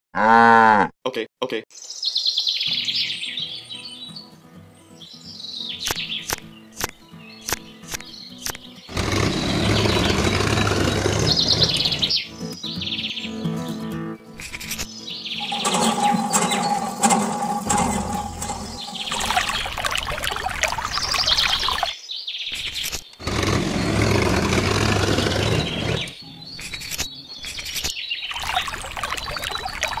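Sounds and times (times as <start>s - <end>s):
birds chirping: 1.7s - 30.0s
water pouring into plastic tank: 15.4s - 21.9s, 28.3s - 30.0s.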